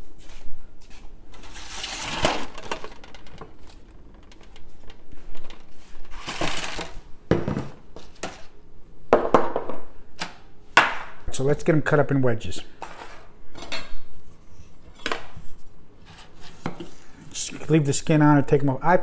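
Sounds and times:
foil pan crinkling: 1.4s - 4.5s, 5.4s - 7.0s
items knocking on countertop: 7.3s - 8.4s, 9.1s - 9.9s.

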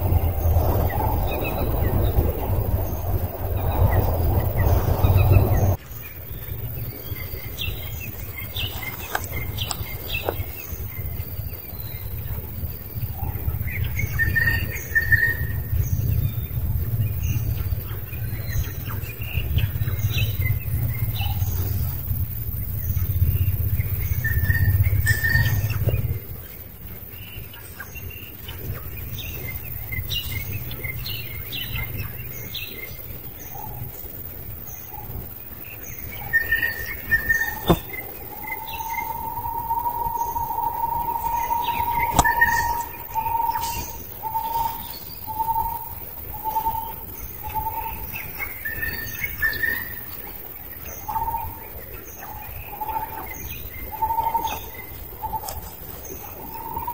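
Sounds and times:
low rumble: 0.0s - 27.2s
birds chirping: 0.0s - 56.9s.

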